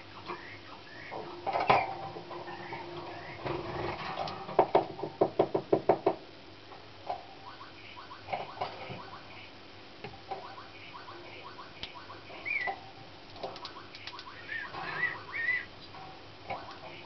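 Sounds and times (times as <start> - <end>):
canary chirping: 0.0 - 3.6, 10.2 - 15.8
slurred whistled notes: 10.4 - 12.8, 13.6 - 15.7
canary clicks: 12.6 - 14.4.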